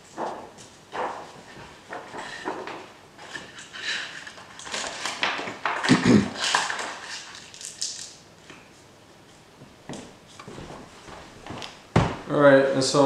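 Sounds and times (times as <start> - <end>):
objects rustling and scraping: 0.0 - 12.3
heavy thump: 11.9 - 12.3.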